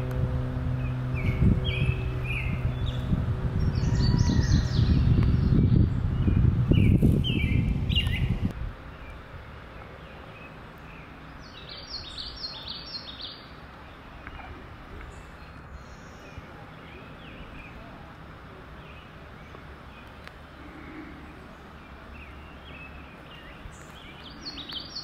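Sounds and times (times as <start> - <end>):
low droning rumble: 0.0 - 25.0
songbirds chirping: 0.0 - 25.0.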